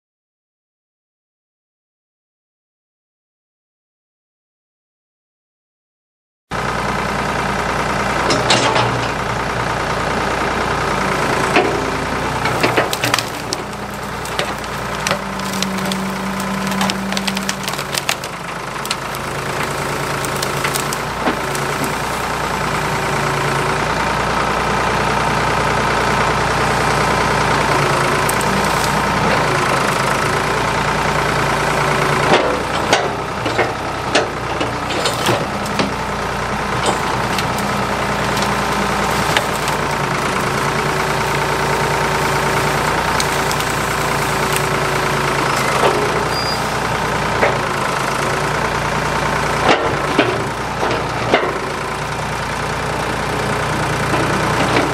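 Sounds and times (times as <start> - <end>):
backhoe engine running: 6.5 - 54.9
knocks and cracks of brush: 12.4 - 22.6, 28.1 - 30.4, 32.3 - 36.1, 36.8 - 46.6.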